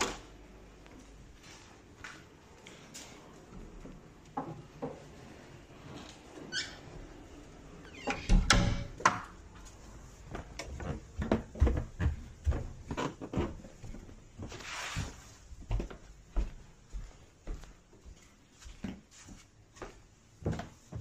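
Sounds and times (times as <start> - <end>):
wooden door swinging shut: 8.0 - 9.1
footsteps on carpeted stairs: 9.5 - 21.0.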